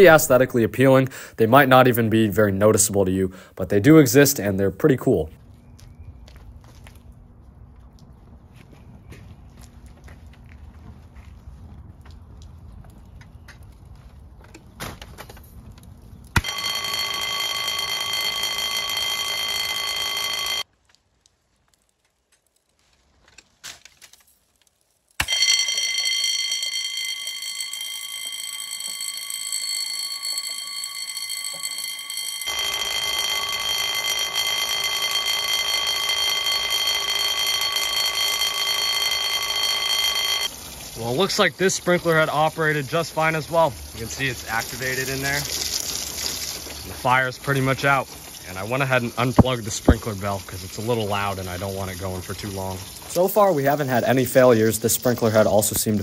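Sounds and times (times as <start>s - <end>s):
alarm bell ringing: 0.0s - 0.5s, 16.4s - 20.7s, 25.2s - 40.5s
hiss of spraying water: 40.5s - 55.1s.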